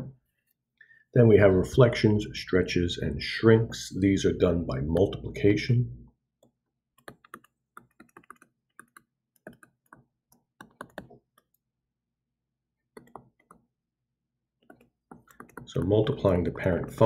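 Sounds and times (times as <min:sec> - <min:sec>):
stylus tapping on a tablet: 0:07.0 - 0:11.6, 0:12.9 - 0:13.7, 0:14.6 - 0:15.9.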